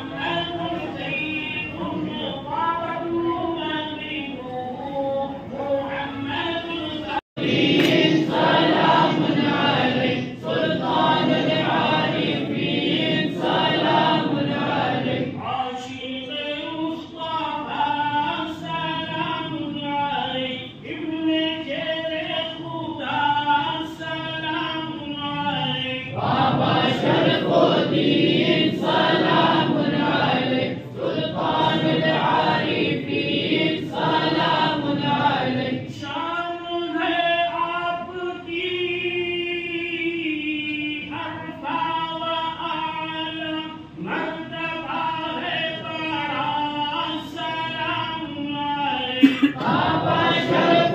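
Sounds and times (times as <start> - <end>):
men chanting in unison: 0.0 - 50.9.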